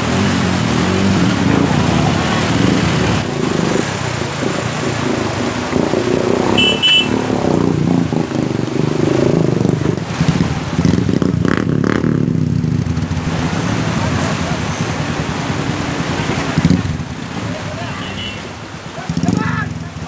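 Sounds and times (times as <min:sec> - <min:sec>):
motorcycle engine revving unevenly: 0:00.0 - 0:20.0
short high beeps: 0:06.6 - 0:07.1.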